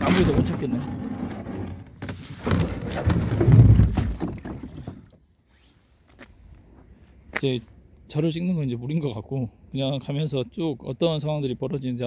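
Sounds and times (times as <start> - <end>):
scrapes and rustling: 0.0 - 7.2
hollow knocks of kayak hull: 2.0 - 5.2.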